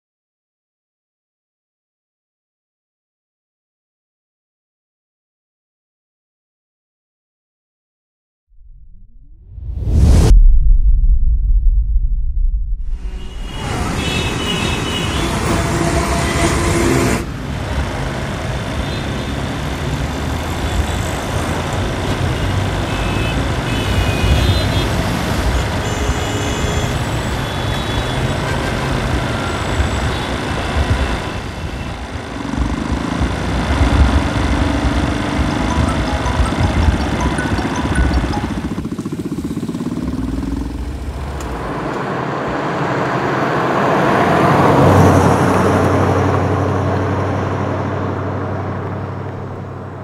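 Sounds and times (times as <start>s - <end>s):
passing vehicle engines: 13.0s - 50.0s
motorbike engine approaching: 32.2s - 42.3s.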